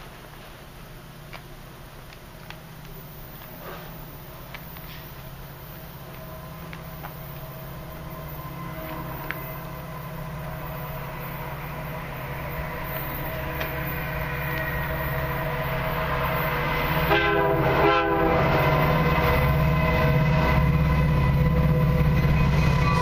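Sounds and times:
diesel train rumble: 0.0 - 23.0
train air horn blasts: 6.2 - 23.0.

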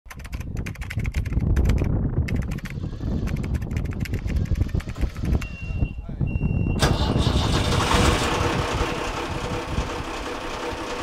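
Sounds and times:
rapid keyboard typing: 0.1 - 5.1
steady low rumble: 1.3 - 11.0.

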